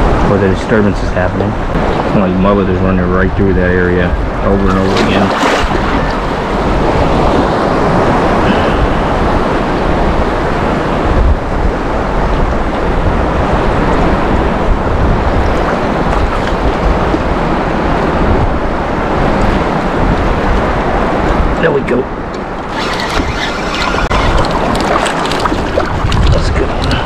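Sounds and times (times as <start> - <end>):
choppy surf: 0.0 - 27.0
wind buffeting microphone: 0.0 - 27.0
water sloshing around wader: 4.3 - 8.5, 12.3 - 18.6, 22.3 - 27.0.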